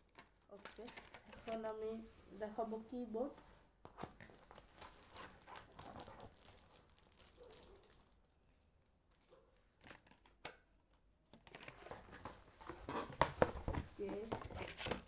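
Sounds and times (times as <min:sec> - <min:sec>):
packaging rustling and crinkling: 0:00.0 - 0:02.5, 0:03.9 - 0:08.3, 0:11.4 - 0:15.0.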